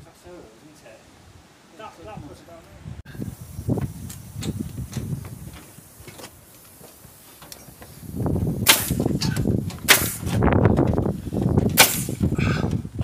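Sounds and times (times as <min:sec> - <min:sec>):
wind rumble on microphone: 0:02.0 - 0:06.2, 0:07.6 - 0:13.0
nail gun firing into timber: 0:08.6 - 0:10.4, 0:11.7 - 0:12.2.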